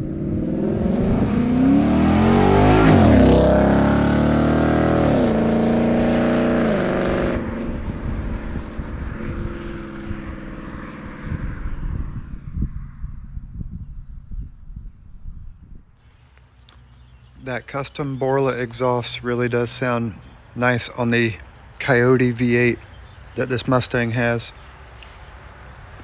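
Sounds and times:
car engine accelerating past: 0.0s - 13.2s.

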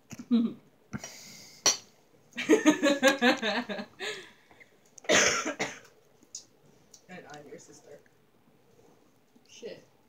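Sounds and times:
woman laughing: 2.4s - 4.3s
harsh cough: 5.1s - 5.8s.

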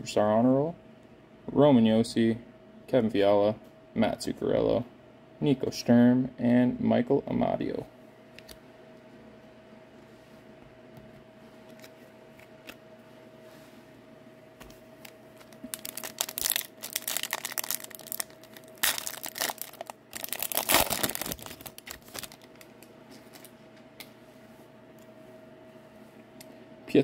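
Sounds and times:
foil wrapper tearing and crinkling: 15.4s - 23.5s.

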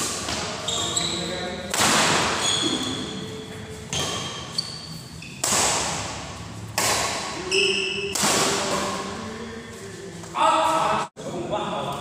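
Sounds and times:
shoes squeaking on court floor: 0.3s - 1.5s, 2.3s - 5.5s
racket striking shuttlecock: 5.4s - 9.0s.

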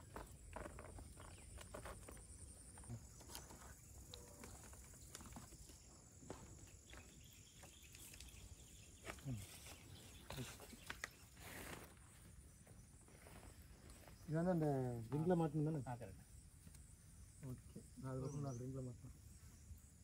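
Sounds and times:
tent poles and clips rattling: 0.0s - 5.7s.

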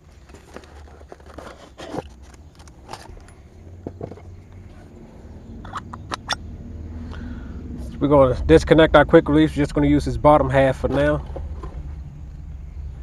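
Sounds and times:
scrapes and rustles of handling: 0.0s - 5.0s, 10.4s - 12.0s.

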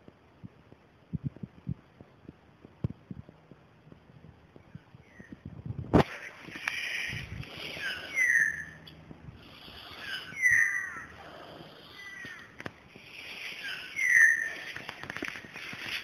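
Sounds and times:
bird harsh calls: 6.1s - 16.0s.

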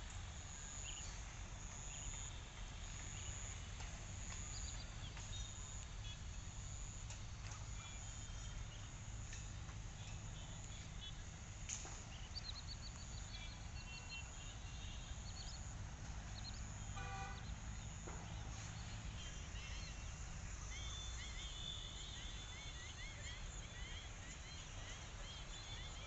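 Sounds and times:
faint bird chirps: 4.2s - 26.0s
vehicle horn toot: 16.9s - 17.6s.

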